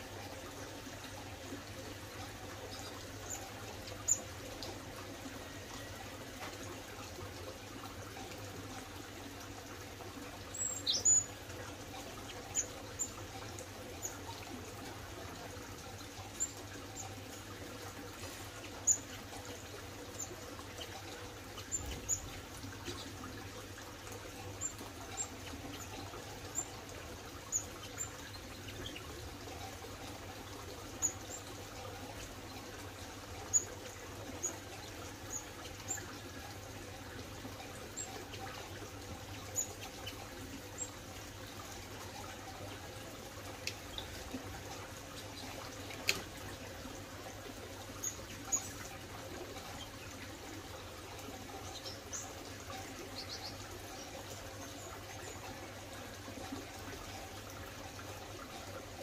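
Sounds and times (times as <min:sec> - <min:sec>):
running water trickling: 0:00.0 - 0:59.0
small birds chirping: 0:10.4 - 0:30.2, 0:30.8 - 0:41.0, 0:51.4 - 0:56.1.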